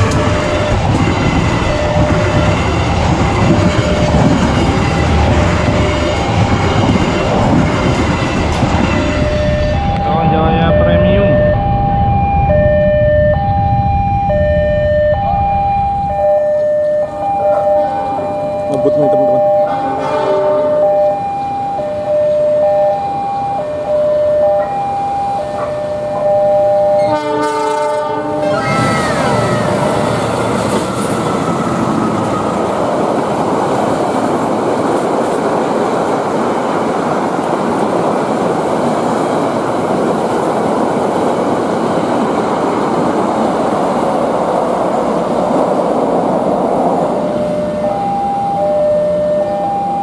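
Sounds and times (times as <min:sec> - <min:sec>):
locomotive horn: 0:00.0 - 0:01.0, 0:17.0 - 0:21.4, 0:26.9 - 0:30.3
train coaches running on rails: 0:00.0 - 0:50.0
two-tone crossing warning bell: 0:00.0 - 0:50.0.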